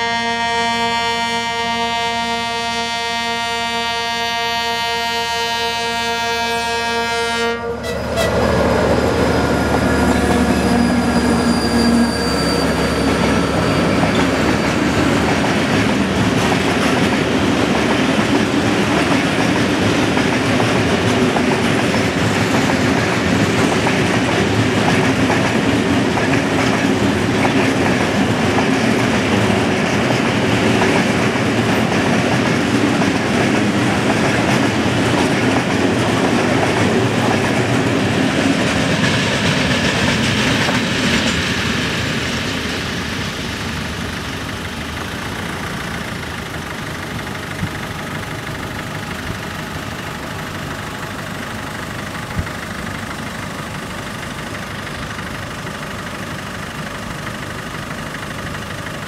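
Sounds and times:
locomotive horn note: 0.0s - 8.8s
locomotive and wagons rolling past: 7.8s - 56.4s.

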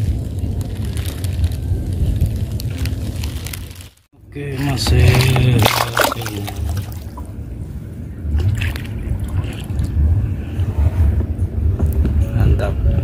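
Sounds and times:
wind rumbling on microphone: 0.0s - 4.0s, 6.4s - 13.0s
water splashing and trickling: 4.6s - 7.3s.

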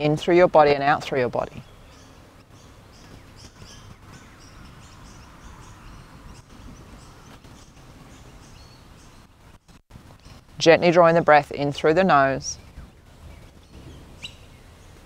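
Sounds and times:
low background noise: 0.0s - 15.0s
faint bird chirping: 1.4s - 10.5s, 12.5s - 15.0s.

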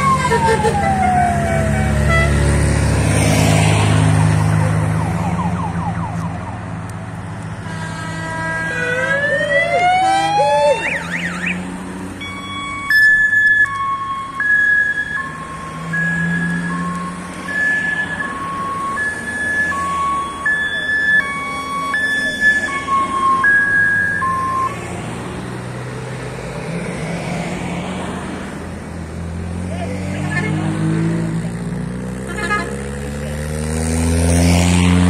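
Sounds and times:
rising whooping siren: 0.0s - 2.3s, 4.2s - 6.7s, 8.7s - 11.6s
falling siren wail: 0.0s - 2.4s, 4.1s - 6.8s, 8.6s - 24.8s
car engines passing: 0.0s - 35.0s
two-tone horn: 0.2s - 2.4s, 7.6s - 9.3s, 32.2s - 32.9s.

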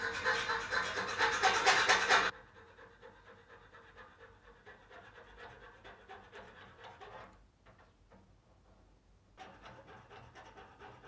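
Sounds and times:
saw cutting metal: 0.0s - 2.4s, 9.4s - 11.0s.

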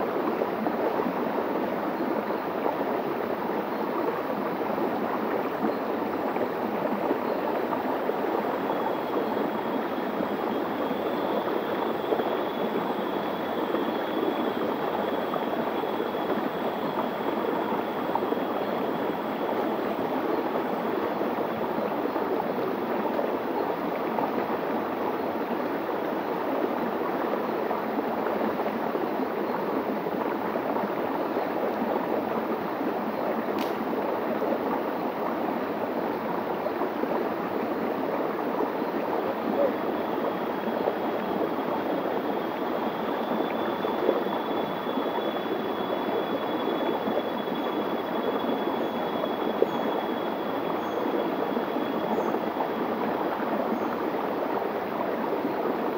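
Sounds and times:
faint high steady tone: 38.6s - 54.0s.

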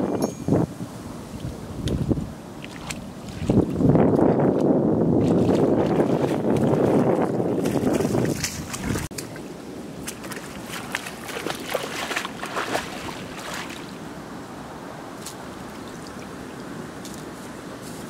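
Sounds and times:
low wash of water: 0.6s - 17.0s
water splashing: 1.8s - 4.4s, 5.2s - 14.0s.

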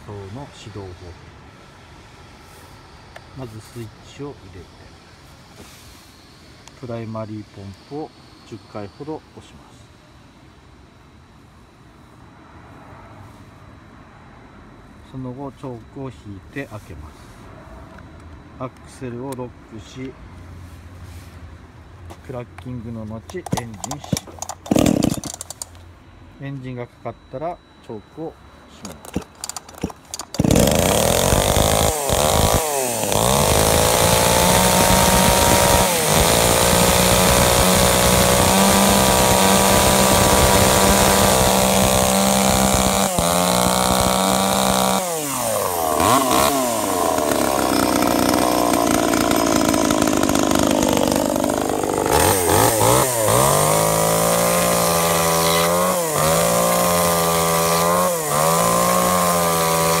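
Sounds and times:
chainsaw engine running: 23.3s - 25.7s, 28.8s - 60.0s
chainsaw sawing through wood: 23.5s - 25.4s, 29.0s - 60.0s.

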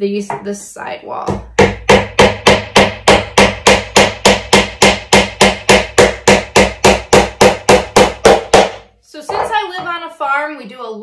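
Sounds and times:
hammer nailing into wood: 1.3s - 9.5s.

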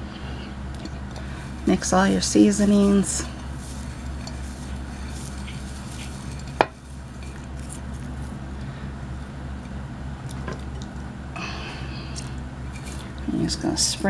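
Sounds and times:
steady low hum: 0.0s - 14.0s
rustle near microphone: 1.2s - 8.4s.

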